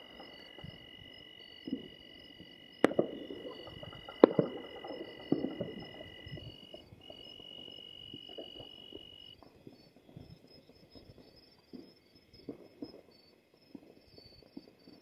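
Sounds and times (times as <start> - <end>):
insects trilling: 0.0 - 15.0
distant firecrackers banging: 2.8 - 7.7.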